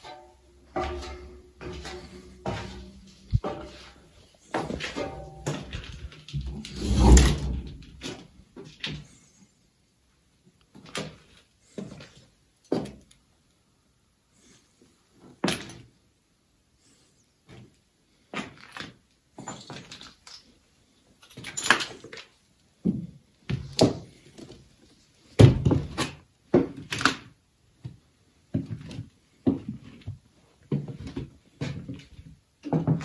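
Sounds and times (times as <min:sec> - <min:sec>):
irregular knocks and thuds: 0:00.0 - 0:04.0.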